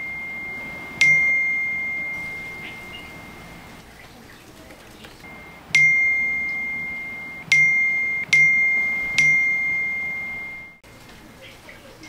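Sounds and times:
message notification chime: 0.0 - 3.8, 5.3 - 10.8.

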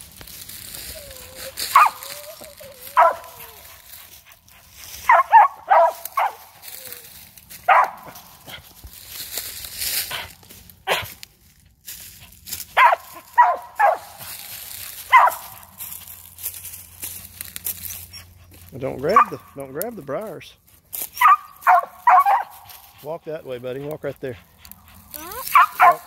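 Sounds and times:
dog barking: 1.6 - 3.6, 5.0 - 6.5, 7.6 - 8.3, 12.8 - 14.3, 15.0 - 15.6, 19.0 - 19.4, 21.2 - 22.7, 25.2 - 26.0.

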